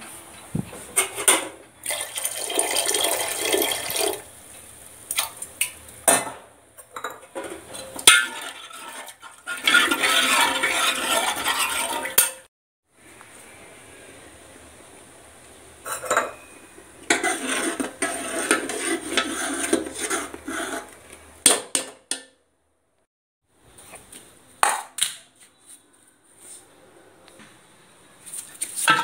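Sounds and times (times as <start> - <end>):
utensil scraping metal pot: 6.8 - 12.5, 15.8 - 21.2.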